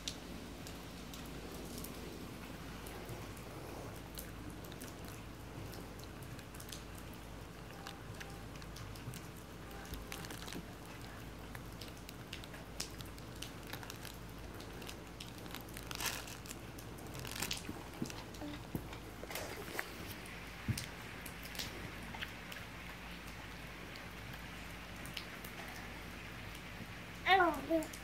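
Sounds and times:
crinkle toy crinkling: 0:07.9 - 0:20.2.

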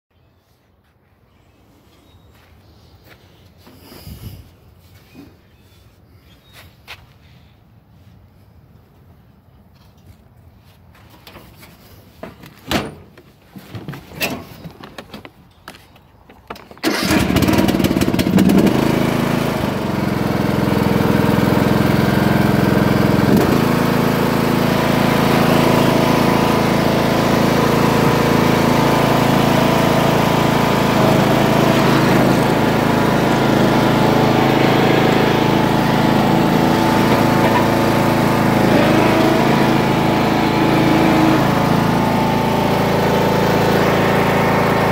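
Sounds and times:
riding mower engine running: 0:16.5 - 0:44.9.

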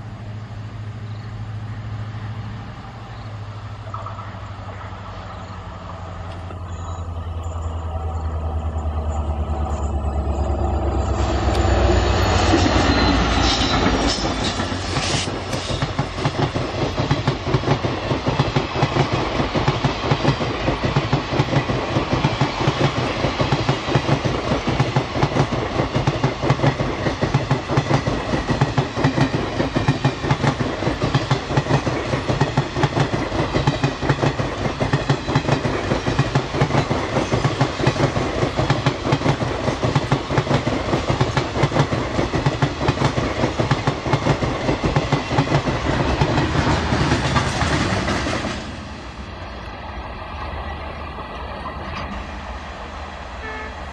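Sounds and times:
low train rumble: 0:00.0 - 0:53.9
train wheels clattering over rail joints: 0:12.4 - 0:48.7.

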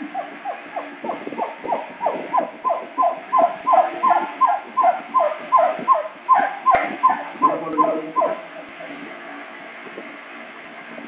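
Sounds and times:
puppy yelping: 0:00.1 - 0:08.7.

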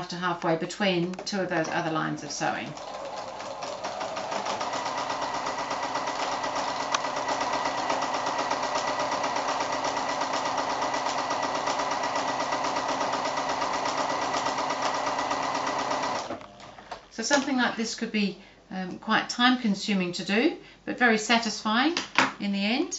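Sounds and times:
sewing machine running: 0:02.4 - 0:16.4.

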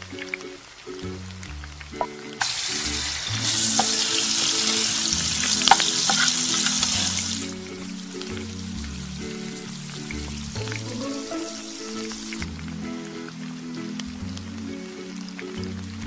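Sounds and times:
tomatoes sizzling in hot oil: 0:00.1 - 0:14.2
wooden spatula stirring: 0:03.3 - 0:07.7
utensil clacking against pan: 0:03.6 - 0:04.8, 0:05.4 - 0:07.1.

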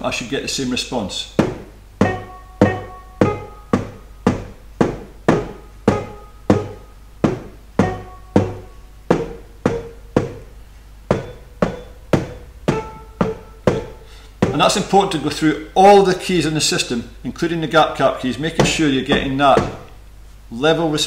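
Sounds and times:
mallet striking bars: 0:01.4 - 0:15.1, 0:18.5 - 0:20.0
electric piano notes: 0:02.0 - 0:15.3.

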